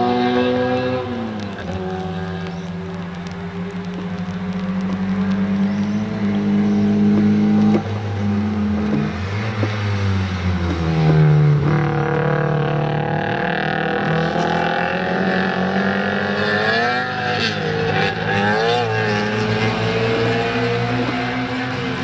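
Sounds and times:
car passing close: 0.0 - 22.0
race car engines revving: 0.0 - 22.0.

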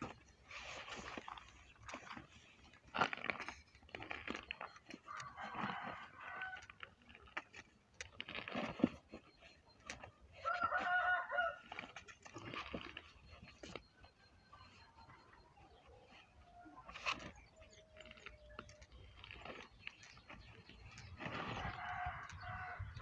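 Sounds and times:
rooster crowing: 5.1 - 6.6, 10.4 - 11.6, 21.6 - 23.0.

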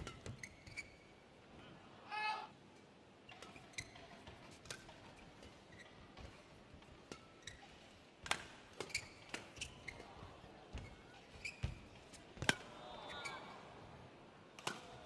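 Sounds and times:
shoes squeaking on court: 0.0 - 1.1, 8.8 - 10.0, 10.8 - 11.8
rackets striking shuttlecock: 8.2 - 9.6.

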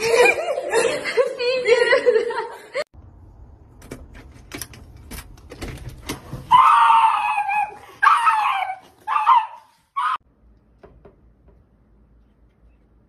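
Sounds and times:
dog screaming cries: 6.5 - 10.2.

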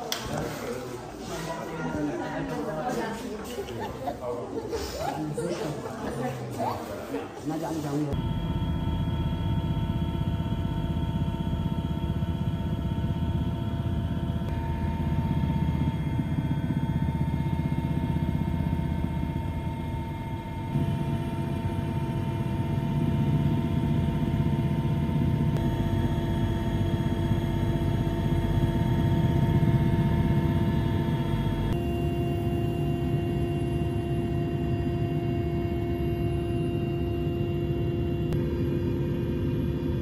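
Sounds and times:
aircraft engine drone in cabin: 8.2 - 40.0.

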